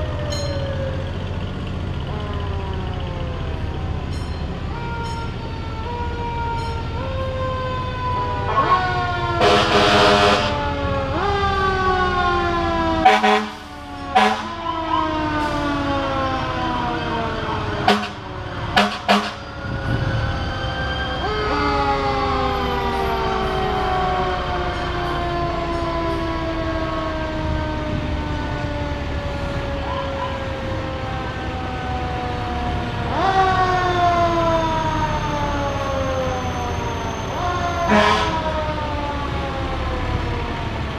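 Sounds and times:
fire truck sirens wailing: 0.0s - 40.9s
loud horn blast: 9.4s - 10.6s, 13.0s - 14.6s, 17.8s - 19.7s, 37.8s - 38.5s.

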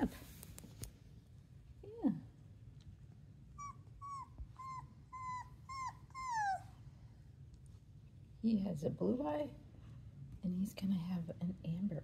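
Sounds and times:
puppy whining: 3.5s - 7.1s.

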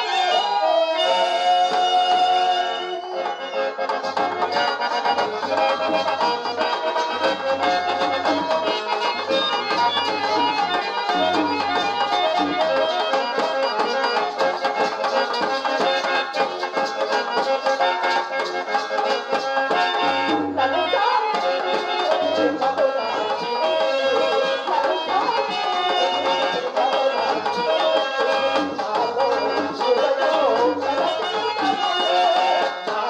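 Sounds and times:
reedy wind instrument melody: 0.0s - 33.0s
hand drum strokes: 4.1s - 19.2s.

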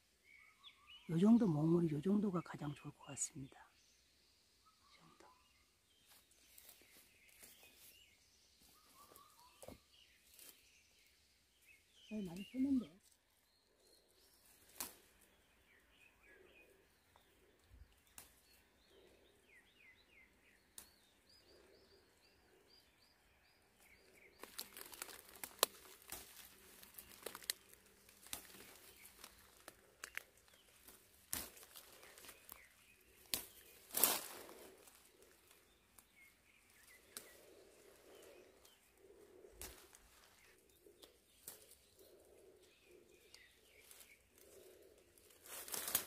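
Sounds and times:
birds chirping: 0.2s - 46.0s
leaves rustling: 6.0s - 10.7s, 11.6s - 19.6s, 23.8s - 46.0s
stems snapping: 14.6s - 15.2s, 17.9s - 18.6s, 20.7s - 21.1s, 24.4s - 38.8s, 39.4s - 42.1s, 43.2s - 46.0s.

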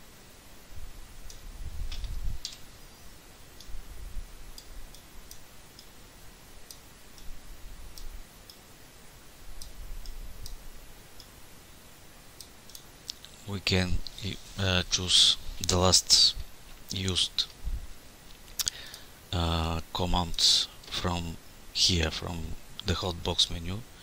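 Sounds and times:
computer mouse clicking: 12.4s - 13.3s.

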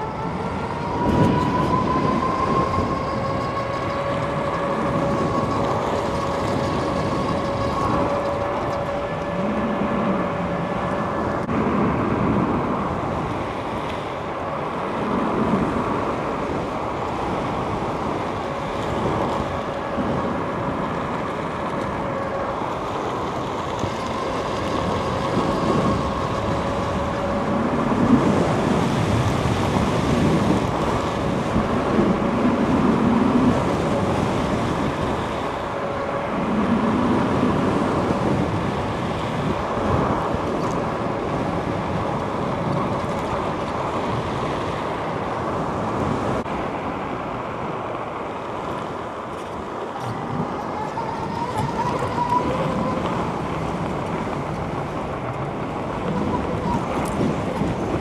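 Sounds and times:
electric bike motor whining: 0.0s - 11.4s, 16.4s - 43.9s, 49.4s - 58.0s
wind and road noise rumble: 0.0s - 58.0s.

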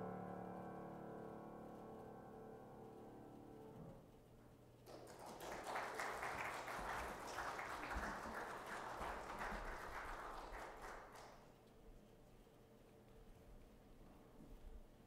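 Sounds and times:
congregation applauding: 4.8s - 11.6s.

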